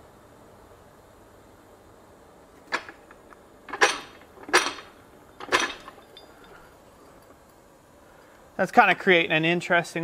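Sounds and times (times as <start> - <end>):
fly press metallic clanks: 2.7 - 6.7.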